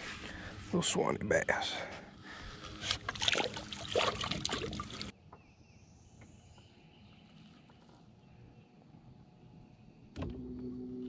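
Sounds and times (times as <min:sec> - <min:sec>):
water lapping at hull: 0:02.7 - 0:05.1.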